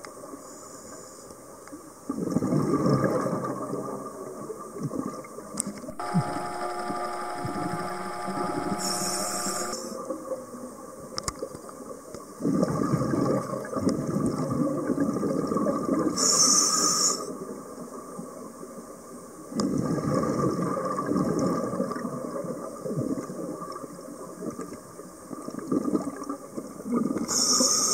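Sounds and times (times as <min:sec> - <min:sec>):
exhaled bubbles underwater: 0:02.1 - 0:05.4, 0:12.4 - 0:16.1, 0:19.6 - 0:24.7
regulator inhalation hiss: 0:16.2 - 0:17.3, 0:27.3 - 0:27.9.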